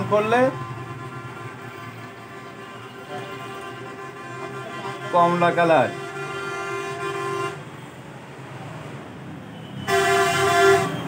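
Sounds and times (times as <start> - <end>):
vehicle horn blasts: 0.4 - 7.6, 9.5 - 11.0.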